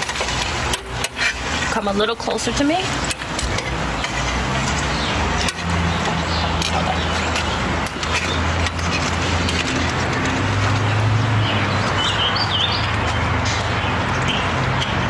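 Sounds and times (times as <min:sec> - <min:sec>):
bird chirping: 0:11.3 - 0:15.0.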